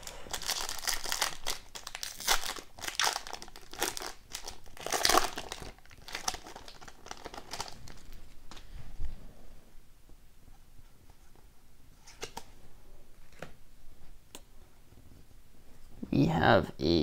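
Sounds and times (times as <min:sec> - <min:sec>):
foil wrapper crinkling: 0:00.0 - 0:08.6.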